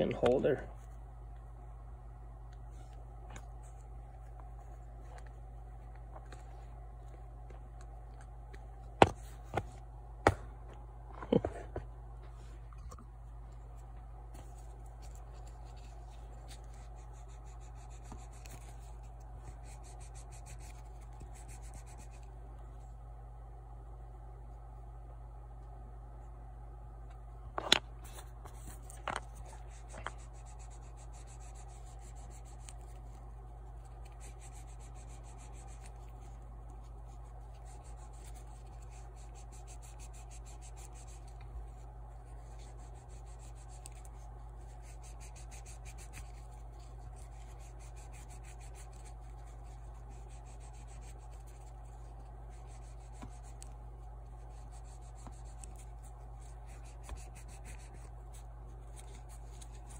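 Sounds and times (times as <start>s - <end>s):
rapid hand rubbing: 14.4s - 22.3s, 28.1s - 59.9s.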